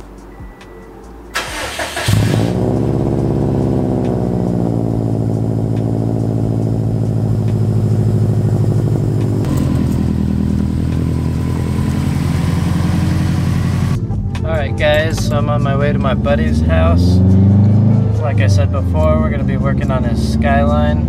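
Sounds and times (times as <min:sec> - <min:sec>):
car engine fast idle: 0:01.3 - 0:14.0.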